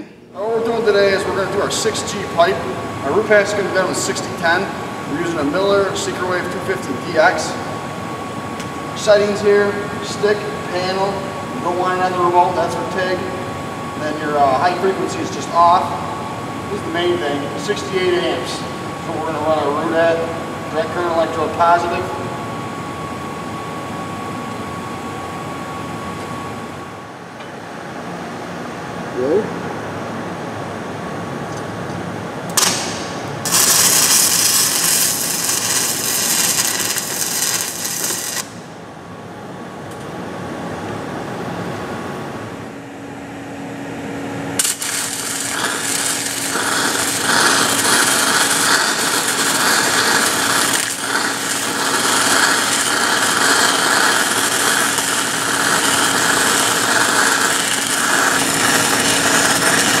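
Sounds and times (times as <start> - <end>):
welding arc crackling: 32.5 - 38.6, 44.5 - 60.0.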